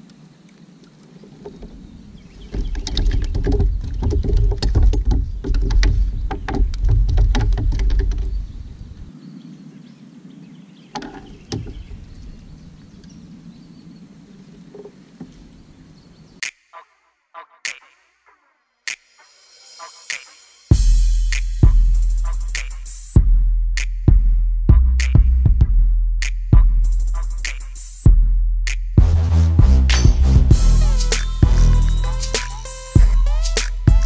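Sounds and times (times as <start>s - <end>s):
knocking against kayak hull: 2.5s - 8.4s.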